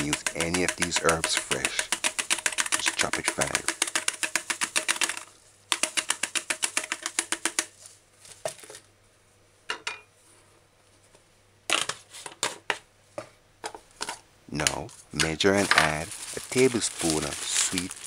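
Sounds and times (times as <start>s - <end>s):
scattered clicks and taps: 0.0s - 7.7s
spice mill ratcheting clicks: 0.0s - 7.7s.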